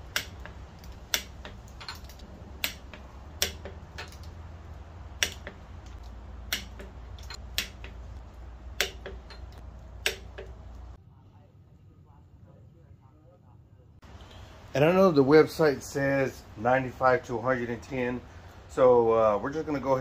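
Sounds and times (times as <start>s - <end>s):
low hum: 0.0s - 14.7s
torque wrench clicking: 0.1s - 4.4s, 5.2s - 8.0s.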